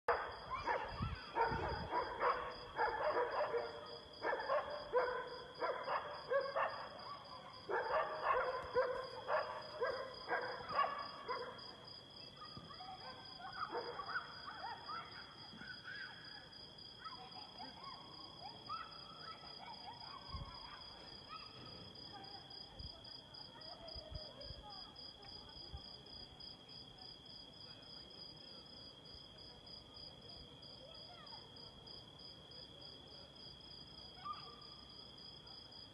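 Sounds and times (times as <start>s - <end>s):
dogs barking: 0.1s - 7.0s, 7.7s - 11.7s, 13.0s - 14.9s.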